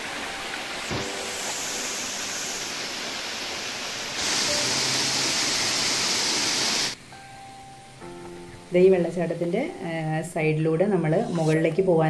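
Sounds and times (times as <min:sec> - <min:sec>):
waterfall rushing: 0:00.0 - 0:07.0.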